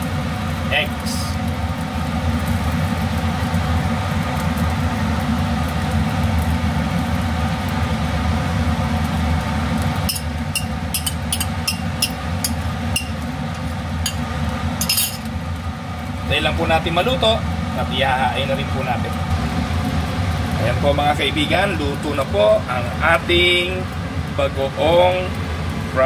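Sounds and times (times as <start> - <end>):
range hood fan humming: 0.0 - 26.0
fork clinking in pan: 10.1 - 13.2, 14.1 - 15.3.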